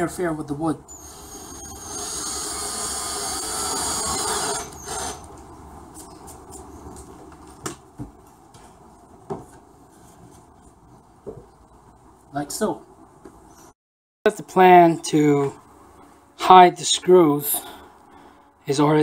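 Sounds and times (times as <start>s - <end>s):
cordless drill driving screw: 0.9s - 5.3s.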